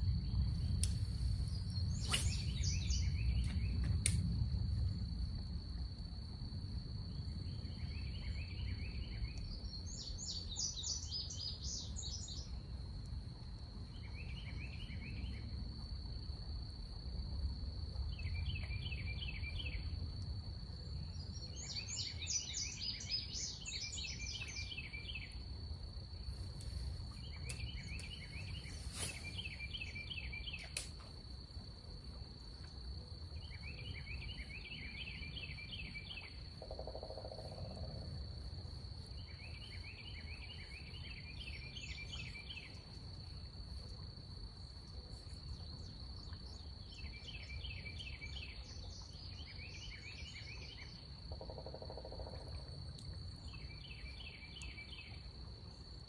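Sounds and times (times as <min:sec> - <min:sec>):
high insect drone: 0:00.0 - 0:09.1, 0:19.3 - 0:48.0
low background rumble: 0:00.0 - 0:09.8.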